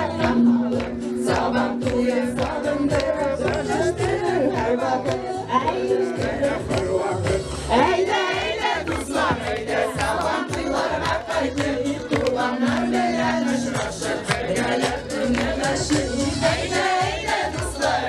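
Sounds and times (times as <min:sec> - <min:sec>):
group of women singing: 0:00.0 - 0:18.0.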